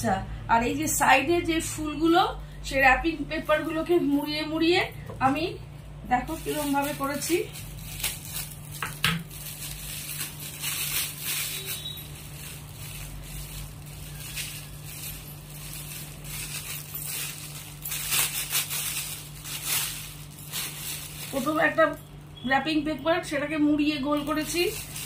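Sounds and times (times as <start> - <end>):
foil wrapping paper crinkling: 6.2 - 22.4, 24.0 - 25.0.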